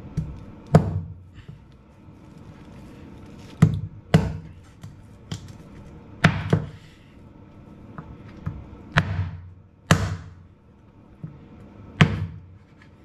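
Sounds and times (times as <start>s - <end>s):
cleaver chopping bones on board: 0.1s - 1.2s, 3.6s - 4.6s, 6.2s - 6.8s, 8.9s - 10.4s, 12.0s - 12.4s.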